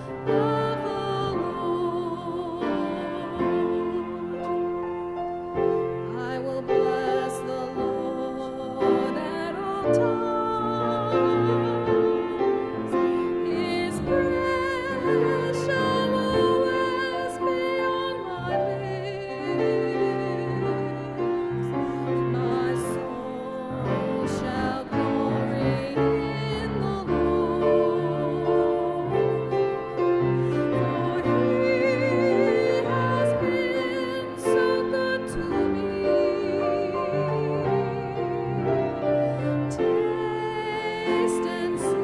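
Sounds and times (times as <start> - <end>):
woman singing with vibrato: 0.0 - 4.8, 6.0 - 42.0
instrumental accompaniment: 0.0 - 42.0.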